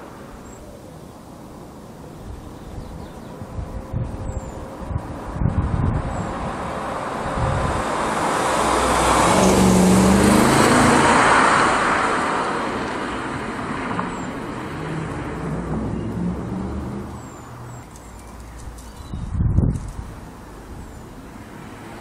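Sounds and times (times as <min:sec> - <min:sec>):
car engine driving past: 0:06.5 - 0:17.8.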